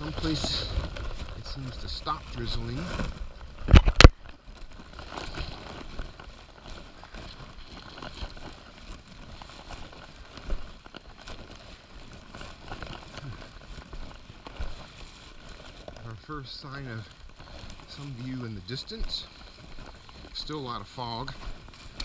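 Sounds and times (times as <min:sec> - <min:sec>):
footsteps on wet rocky trail: 0:00.0 - 0:22.0
camera handling noise: 0:03.6 - 0:04.4.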